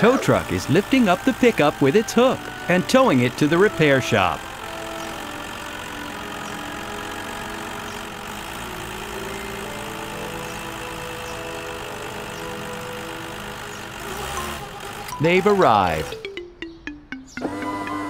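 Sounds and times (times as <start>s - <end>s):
cartoon truck engine: 0.0s - 18.0s.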